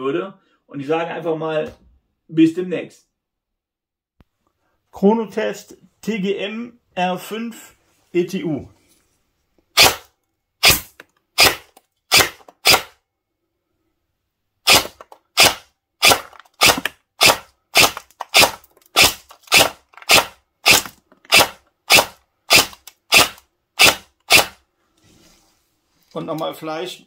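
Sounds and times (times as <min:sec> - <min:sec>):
airsoft gun firing shots: 0:09.8 - 0:10.0, 0:10.6 - 0:13.0, 0:14.7 - 0:24.6.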